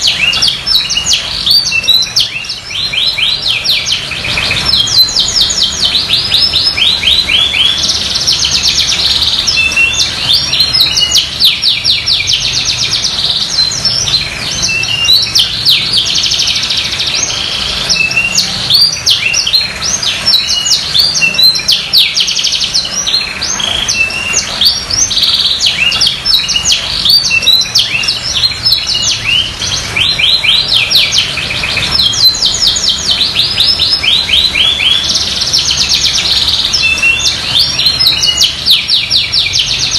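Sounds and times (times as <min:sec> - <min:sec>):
canary trilling song: 0:00.0 - 0:39.9.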